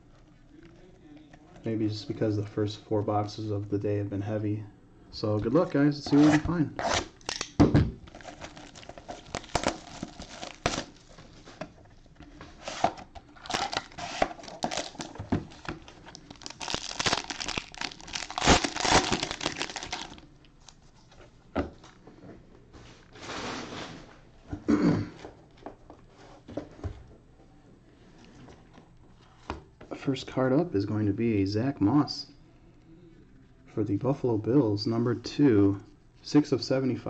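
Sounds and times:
wrapper tearing and crinkling: 6.8s - 11.1s, 13.4s - 20.8s
cards rustling: 8.1s - 11.6s, 12.2s - 21.1s.

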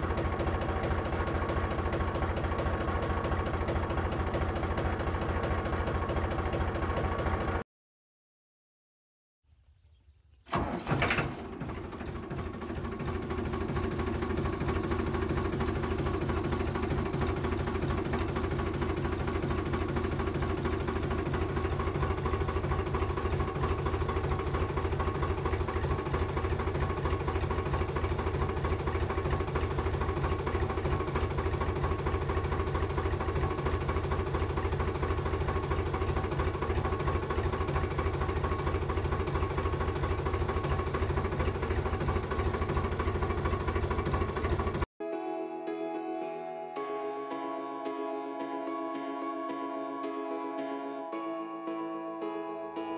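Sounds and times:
tractor engine chugging: 0.0s - 7.6s, 10.5s - 44.9s.

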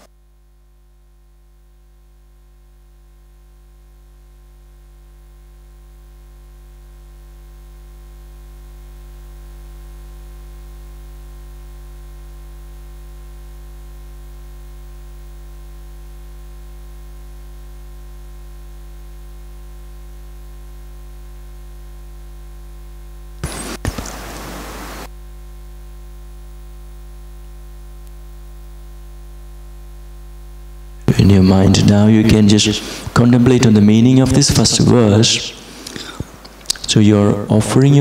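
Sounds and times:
low steady hum: 0.0s - 38.0s
sudden loud burst of noise: 23.4s - 25.1s.

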